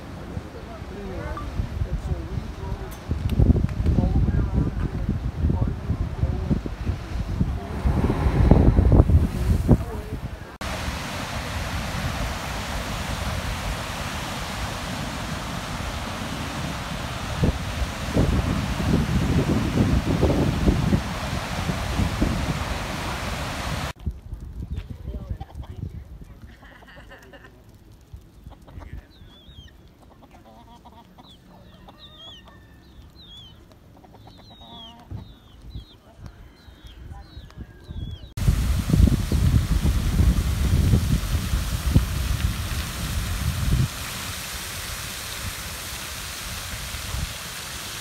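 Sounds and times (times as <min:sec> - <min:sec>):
surf breaking on a beach: 0:00.0 - 0:24.0, 0:38.4 - 0:48.0
wind noise on microphone: 0:00.0 - 0:26.6, 0:35.0 - 0:48.0
chickens clucking: 0:28.4 - 0:36.0
chicks peeping: 0:28.4 - 0:36.0.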